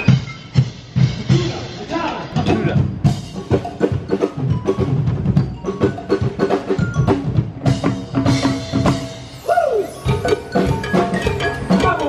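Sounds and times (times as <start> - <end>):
drums: 0.0 - 12.0
tuned mallet percussion: 3.1 - 12.0.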